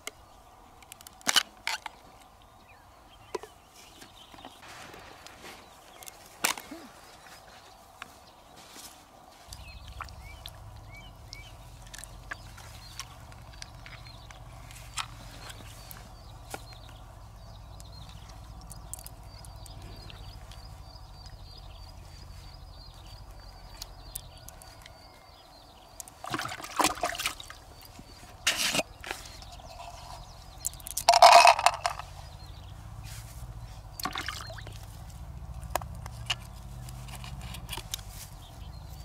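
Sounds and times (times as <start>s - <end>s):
handling noise: 28.0s - 39.0s.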